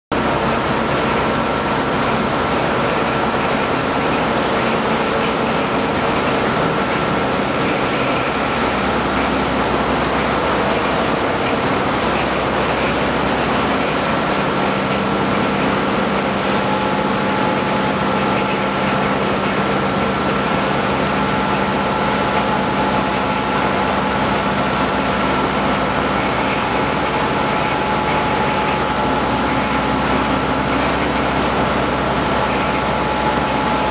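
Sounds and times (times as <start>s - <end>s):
milling machine hum: 0.2s - 33.9s
coolant spray hissing: 5.4s - 21.8s.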